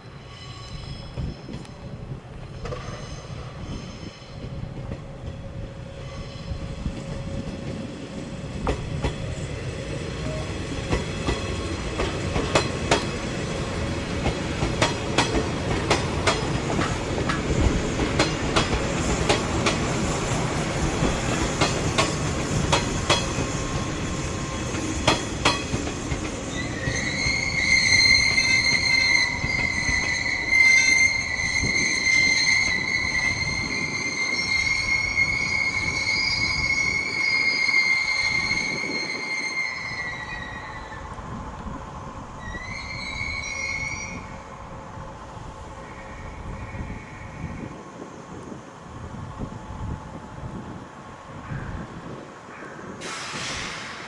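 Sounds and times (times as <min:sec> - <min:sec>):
train rumbling: 0:00.0 - 0:54.0
high-pitched wheel squeal: 0:02.6 - 0:04.5, 0:06.0 - 0:06.7, 0:26.5 - 0:41.1, 0:42.4 - 0:44.5
wheels clicking over rail joints: 0:10.2 - 0:13.2, 0:14.0 - 0:23.9, 0:24.5 - 0:27.4.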